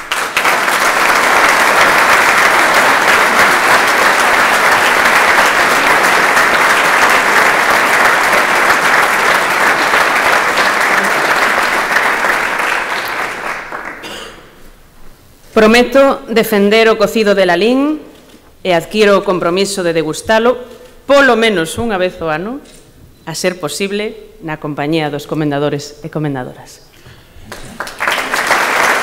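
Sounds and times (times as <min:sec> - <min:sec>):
audience applauding: 0:00.0 - 0:14.1, 0:27.5 - 0:29.0.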